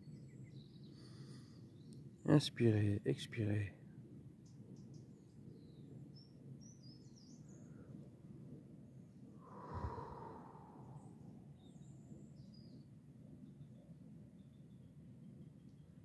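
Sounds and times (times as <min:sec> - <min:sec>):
faint bird chirps: 0:00.0 - 0:02.5, 0:04.4 - 0:08.0, 0:09.4 - 0:16.0
person exhaling: 0:09.4 - 0:11.4.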